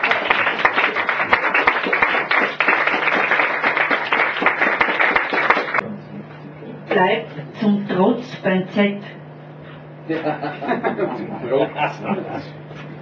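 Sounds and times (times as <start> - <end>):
audience applauding: 0.0 - 5.8.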